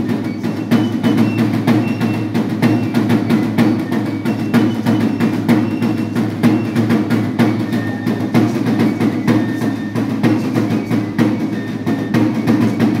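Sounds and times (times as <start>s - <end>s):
drum beating steady strokes: 0.0s - 13.0s.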